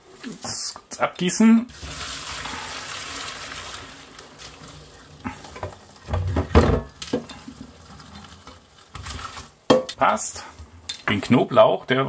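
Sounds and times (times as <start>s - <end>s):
water poured from pot: 1.7s - 9.7s
cookware knocking: 9.7s - 10.0s.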